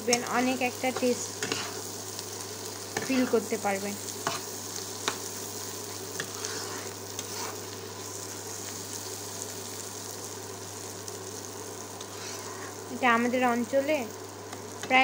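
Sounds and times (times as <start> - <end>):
food sizzling in a pan: 0.0 - 15.0
spatula scraping a pan: 0.9 - 2.0, 4.2 - 8.8, 12.0 - 12.8.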